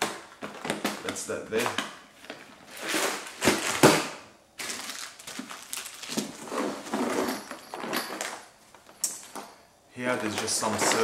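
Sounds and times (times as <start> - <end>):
fabric bag rustling and crinkling: 4.6 - 8.4.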